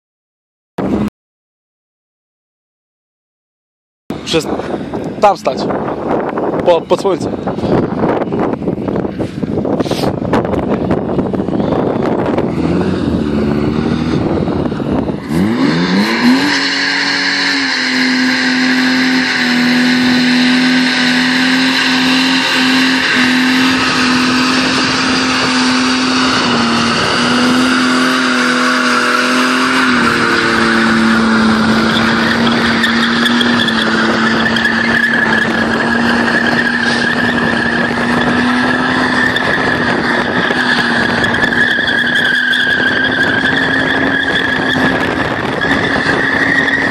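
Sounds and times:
tyres squealing on asphalt: 0:04.2 - 0:46.9
car engine revving hard: 0:10.9 - 0:46.9.

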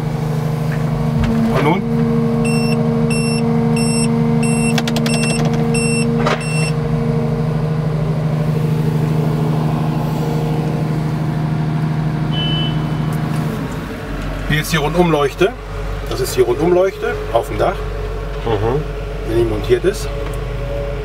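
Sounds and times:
diesel engine and hydraulics running: 0:00.0 - 0:21.0
excavator warning beeping: 0:02.4 - 0:06.8, 0:12.3 - 0:13.2.

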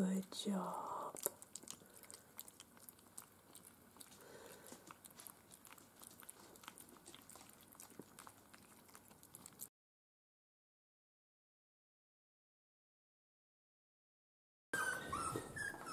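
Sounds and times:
puppies lapping food: 0:00.9 - 0:09.7.

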